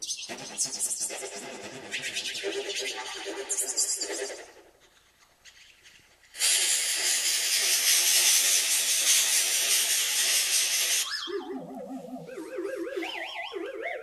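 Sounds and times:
strange electronic synth sound: 11.0 - 14.0.

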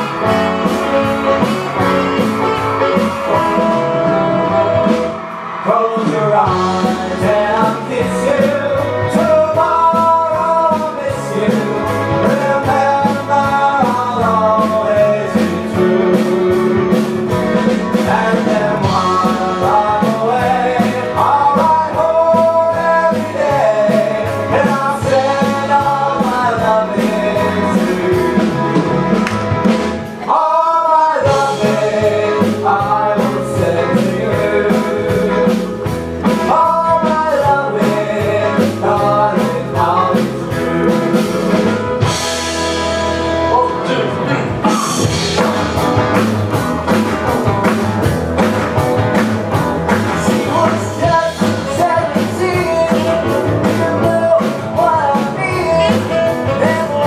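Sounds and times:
live rock and roll band: 0.0 - 57.0
men singing: 5.6 - 29.0, 30.2 - 41.8, 50.0 - 57.0.

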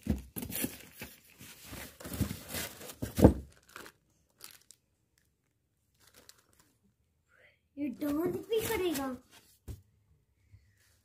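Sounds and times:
plastic bag crinkling and rustling: 0.0 - 6.8, 8.0 - 9.3.

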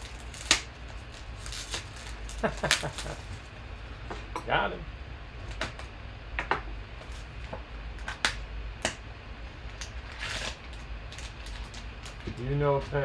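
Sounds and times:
cellophane wrap crackling: 0.0 - 3.5, 9.7 - 13.0
foil pack crinkling: 0.0 - 3.5, 9.7 - 13.0.

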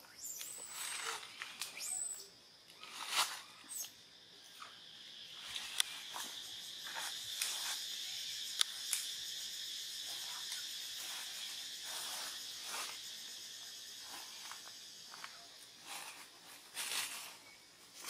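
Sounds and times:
insects droning: 0.0 - 18.0
sharp clicks: 8.5 - 9.1.

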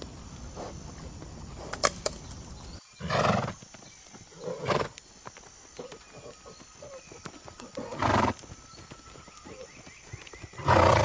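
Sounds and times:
horse calling: 5.8 - 9.9, 10.6 - 11.0.

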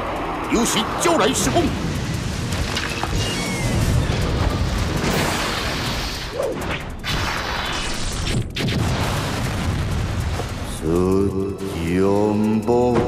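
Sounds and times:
blasts and impacts: 1.7 - 11.2
explosion: 7.0 - 10.8.

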